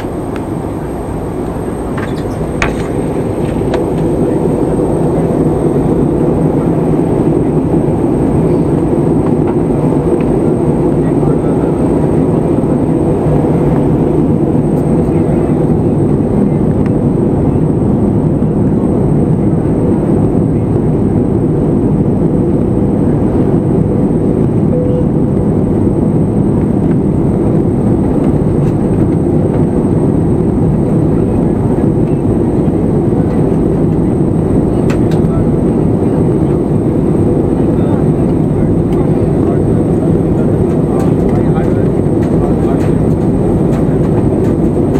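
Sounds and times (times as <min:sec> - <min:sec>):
faint steady hum: 0:00.0 - 0:44.9
jet engines and rushing air: 0:00.0 - 0:44.9.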